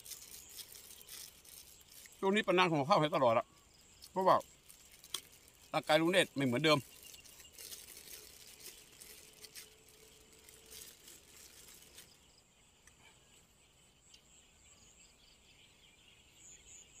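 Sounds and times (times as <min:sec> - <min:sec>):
plastic bag crinkling: 0:00.0 - 0:12.2
insects chirping: 0:00.0 - 0:17.0.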